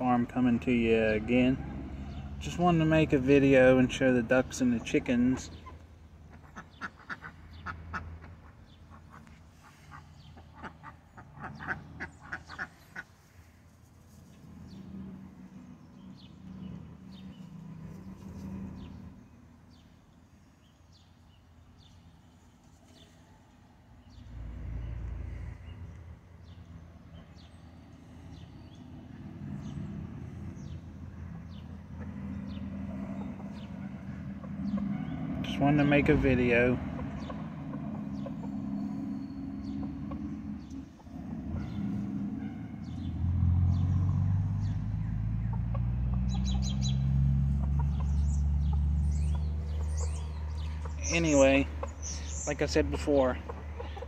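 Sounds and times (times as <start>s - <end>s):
ducks quacking: 6.3s - 13.2s.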